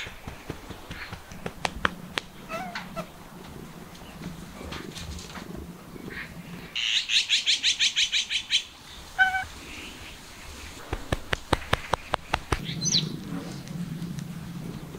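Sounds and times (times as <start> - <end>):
bird trilling: 2.3 - 3.1, 6.8 - 9.5, 11.8 - 13.1
sharp clicks: 10.9 - 12.7.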